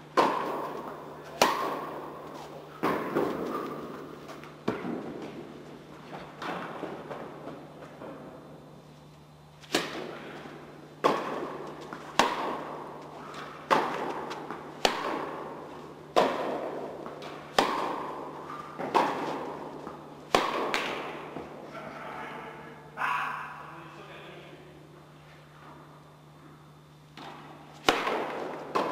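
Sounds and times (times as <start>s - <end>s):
rackets hitting tennis ball: 0.0s - 8.6s, 9.6s - 21.7s, 27.1s - 28.9s.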